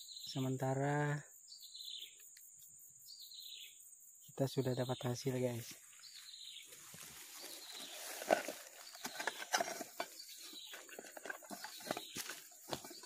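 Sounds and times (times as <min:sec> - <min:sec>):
grass rustling: 0:05.4 - 0:13.0
wooden box knocks and clicks: 0:08.3 - 0:13.0.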